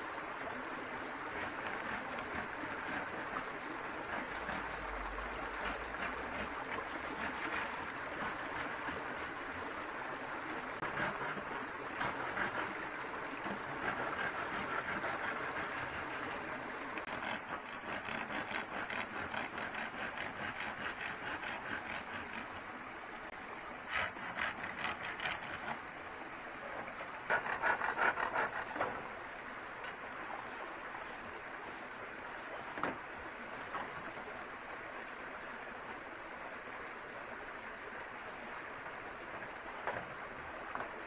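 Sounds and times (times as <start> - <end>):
running water rushing: 0.0 - 41.0
rapid clicking and scraping: 17.0 - 22.6, 24.0 - 25.8.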